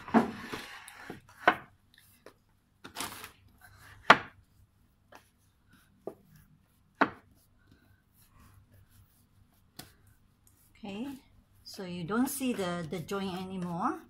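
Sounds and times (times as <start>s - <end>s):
dough rubbing on wooden board: 3.5s - 14.0s.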